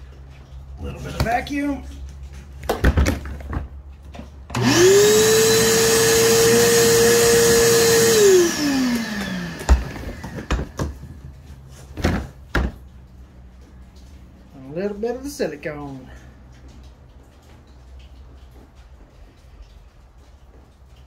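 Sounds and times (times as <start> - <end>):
shop vacuum running: 4.5 - 11.0.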